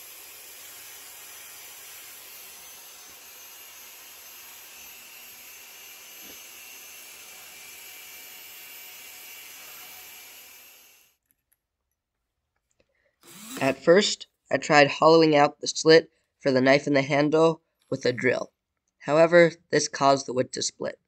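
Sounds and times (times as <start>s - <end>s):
belt sander grinding steel: 0.0s - 11.0s, 13.2s - 13.9s.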